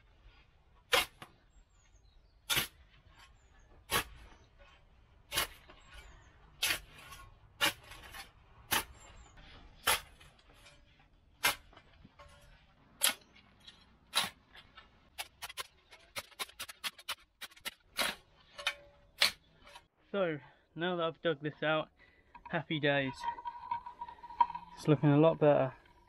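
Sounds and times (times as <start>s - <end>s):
spade chopping into soil: 2.5s - 2.8s, 6.6s - 9.0s.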